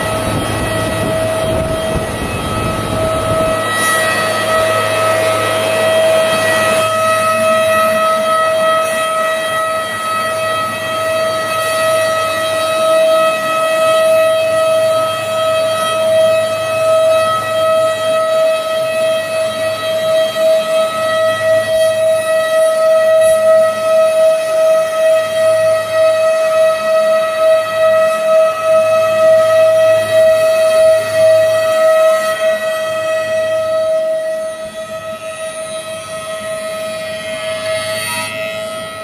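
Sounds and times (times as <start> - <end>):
planer moulder whining: 0.0 - 11.8.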